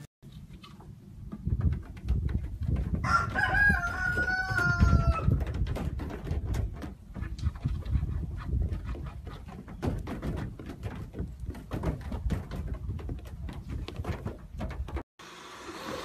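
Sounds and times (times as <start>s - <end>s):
low thumps and knocks: 0.8s - 15.1s
rooster crowing: 3.0s - 5.3s.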